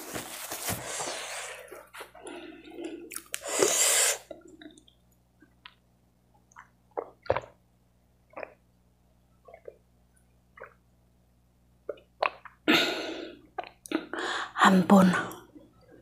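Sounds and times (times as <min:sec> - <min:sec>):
person gulping water: 0:06.5 - 0:07.6, 0:08.3 - 0:08.6, 0:09.4 - 0:09.9, 0:10.5 - 0:10.8, 0:11.8 - 0:14.2.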